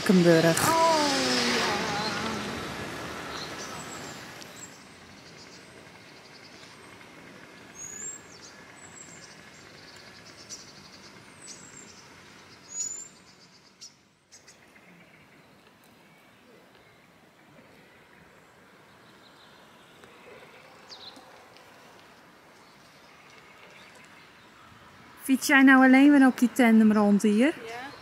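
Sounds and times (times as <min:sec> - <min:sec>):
birds chirping: 0:00.0 - 0:28.0
faint outdoor background noise: 0:00.0 - 0:28.0.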